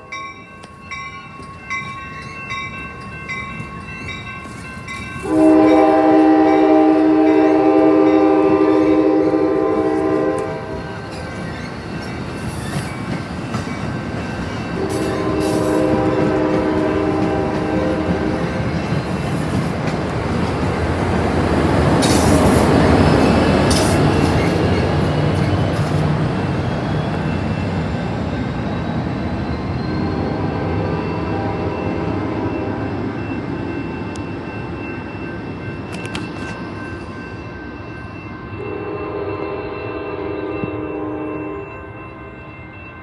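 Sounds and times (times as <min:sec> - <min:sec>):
train cars rumbling and clattering: 0:00.0 - 0:39.2
train horn blasts: 0:05.2 - 0:11.2, 0:14.8 - 0:18.7, 0:30.0 - 0:32.8, 0:38.6 - 0:42.5.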